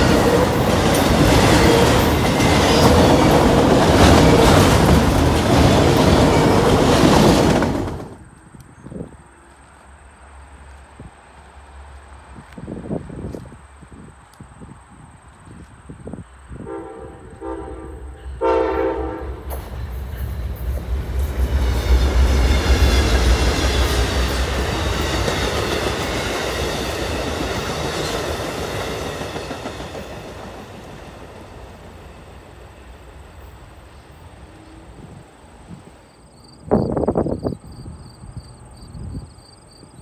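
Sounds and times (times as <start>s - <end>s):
wheels rattling on rail: 0.0s - 9.1s, 19.4s - 36.0s
train horn blasts: 16.6s - 20.3s.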